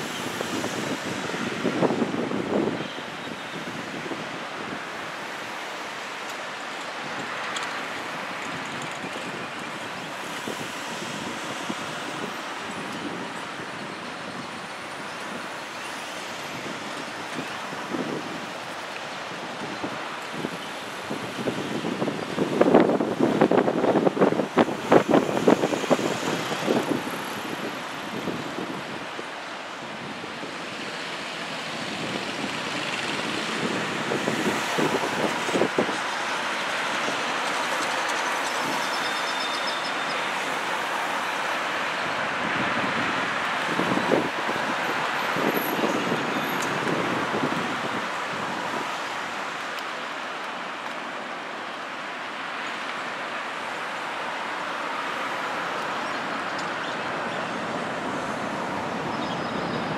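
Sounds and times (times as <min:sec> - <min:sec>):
wind on microphone: 0:00.0 - 0:05.0, 0:16.4 - 0:30.8, 0:31.4 - 0:39.1, 0:40.7 - 0:49.4
distant traffic: 0:04.9 - 0:59.9.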